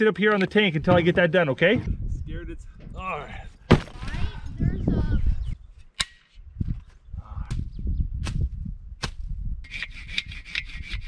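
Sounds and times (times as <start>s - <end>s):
rasping strokes: 9.6s - 11.0s.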